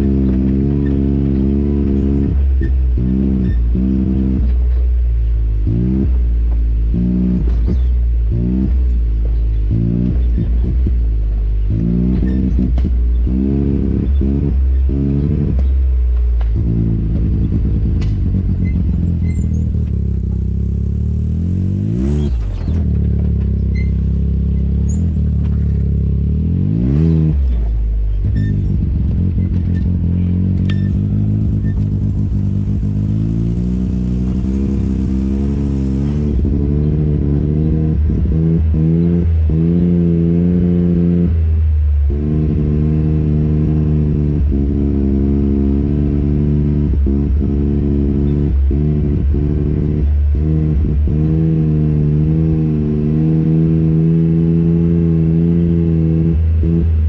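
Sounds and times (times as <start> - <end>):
off-road vehicle engine running: 0.0 - 57.0.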